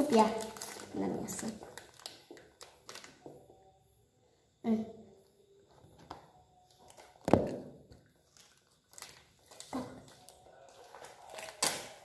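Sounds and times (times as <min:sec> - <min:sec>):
plastic wrappers crinkling: 0:00.0 - 0:03.5, 0:06.7 - 0:12.0.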